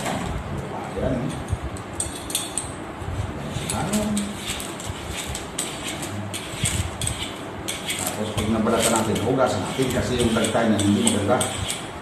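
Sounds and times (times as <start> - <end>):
peeler scraping mango skin: 3.5 - 12.0.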